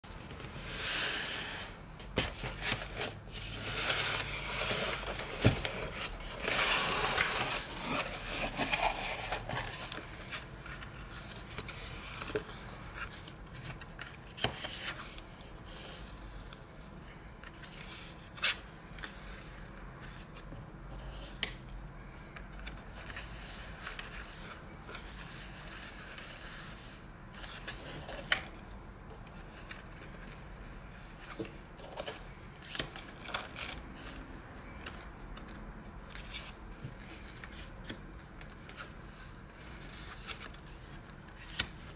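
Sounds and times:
paper mailer rustling and scraping: 0:02.2 - 0:12.5
cardboard postcards shuffling: 0:02.2 - 0:15.9.

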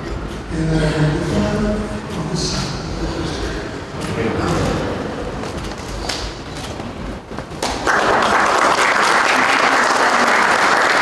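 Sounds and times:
low room murmur: 0:00.0 - 0:11.0
audience applause: 0:07.6 - 0:11.0.

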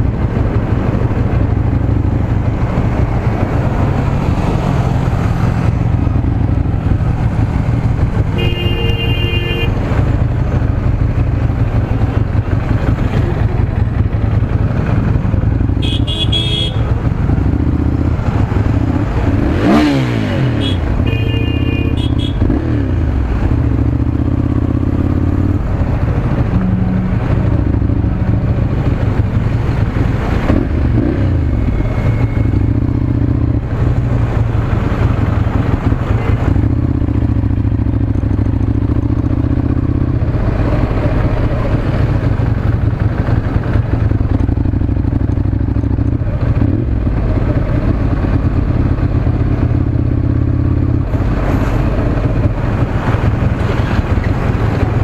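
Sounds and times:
motorcycle engine running: 0:00.0 - 0:55.0
vehicle horns: 0:08.3 - 0:09.8, 0:15.7 - 0:17.0, 0:19.5 - 0:22.9.

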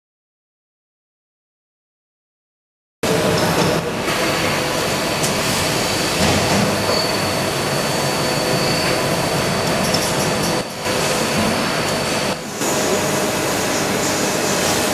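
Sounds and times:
lathe running: 0:03.1 - 0:14.9
thin high whine: 0:03.6 - 0:10.1.

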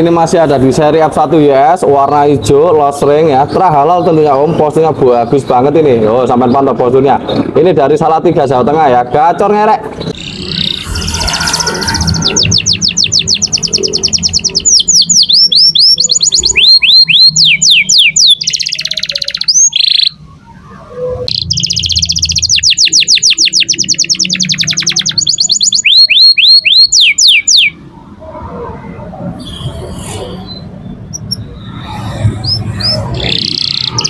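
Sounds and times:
canary singing: 0:10.0 - 0:27.9, 0:29.4 - 0:34.0.

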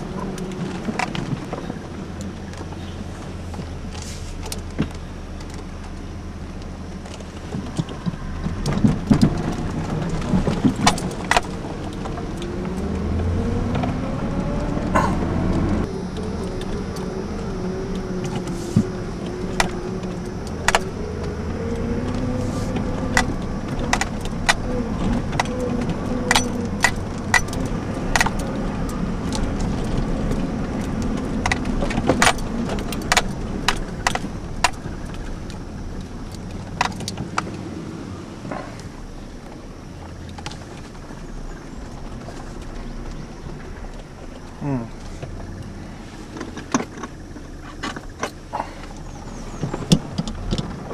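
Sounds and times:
truck engine running: 0:00.0 - 0:50.9
truck jolting knocks and rattles: 0:07.1 - 0:13.7, 0:20.6 - 0:37.6.

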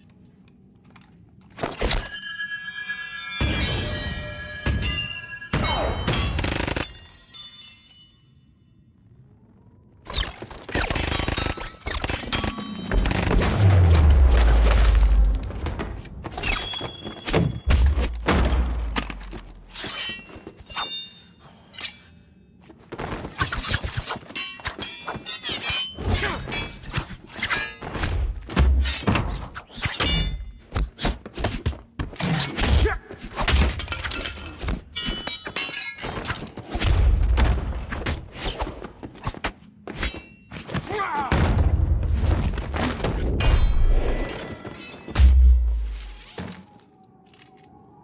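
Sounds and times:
fight blows and thuds: 0:12.0 - 0:19.7, 0:36.2 - 0:43.9.

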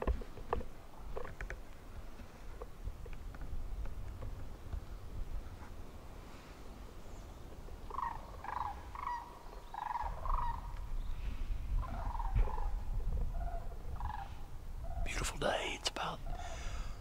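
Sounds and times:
wind rumble on microphone: 0:00.0 - 0:15.4
wild turkey yelping: 0:07.8 - 0:10.8, 0:11.8 - 0:15.0.

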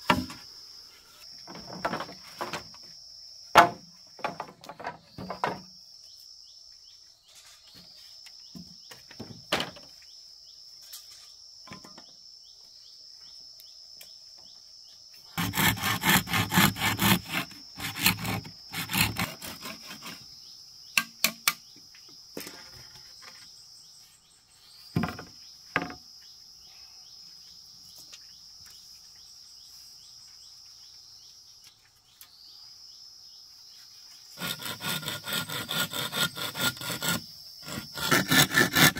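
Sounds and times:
insects droning: 0:00.0 - 0:38.9
rapid rasping strokes: 0:15.4 - 0:20.2, 0:34.3 - 0:38.9.

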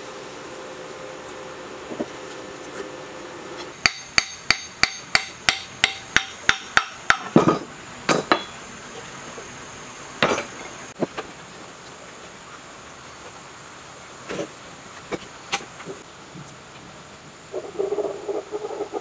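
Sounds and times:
hammer striking metal: 0:03.8 - 0:08.6.

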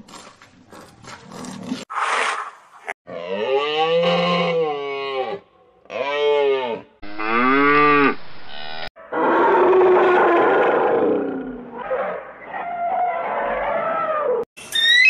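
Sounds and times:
cattle mooing: 0:03.1 - 0:08.7.

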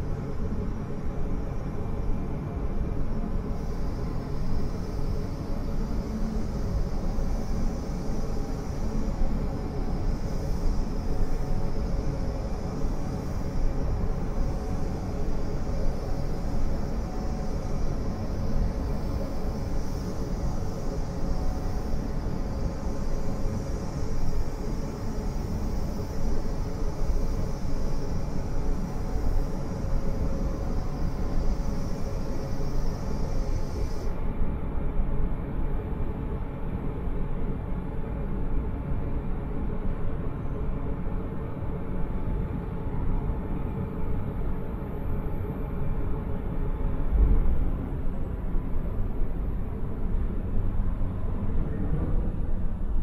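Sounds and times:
steady machine hums: 0:00.0 - 0:53.0
high hiss: 0:02.9 - 0:34.2.

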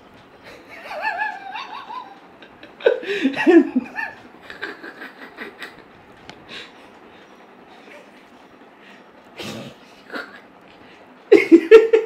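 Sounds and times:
woman laughing: 0:00.5 - 0:05.9, 0:10.0 - 0:10.5, 0:11.3 - 0:12.0.

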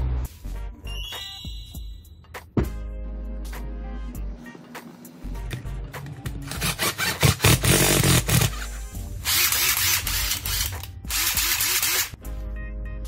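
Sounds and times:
background music: 0:00.0 - 0:13.0
impact wrench bursts: 0:06.5 - 0:08.6, 0:09.2 - 0:12.2.

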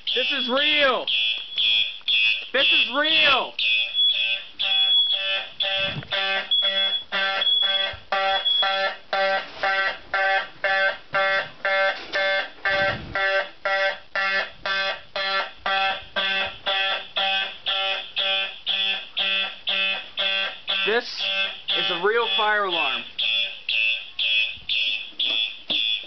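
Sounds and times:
fire alarm horn pulsing: 0:00.0 - 0:26.0
shrill high beep: 0:00.1 - 0:01.8, 0:02.5 - 0:08.8, 0:20.7 - 0:26.0.

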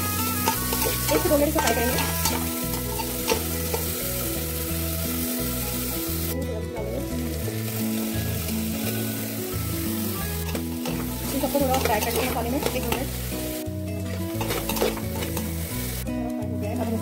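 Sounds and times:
soft background music: 0:00.0 - 0:17.0
vegetables sizzling in a pot: 0:00.0 - 0:17.0
spatula scraping a steel pot: 0:00.1 - 0:03.8, 0:14.4 - 0:15.6.

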